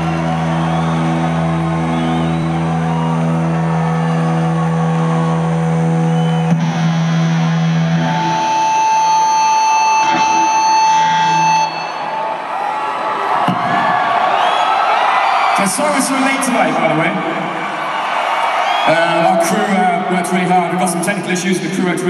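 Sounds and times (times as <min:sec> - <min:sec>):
crowd cheering and whistling: 0:00.0 - 0:22.0
droning chord through pa: 0:01.1 - 0:12.2.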